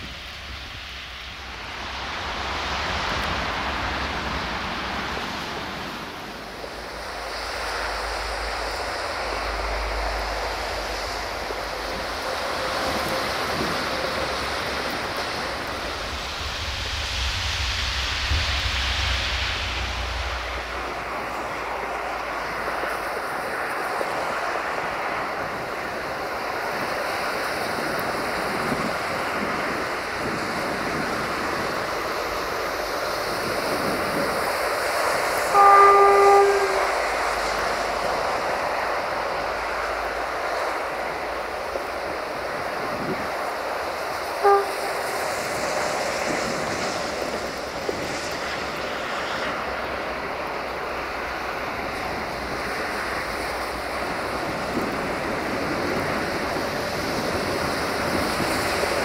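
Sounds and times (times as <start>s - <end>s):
freight train running: 0.0s - 59.0s
locomotive horn: 9.2s - 16.3s, 35.4s - 37.9s, 44.3s - 45.5s.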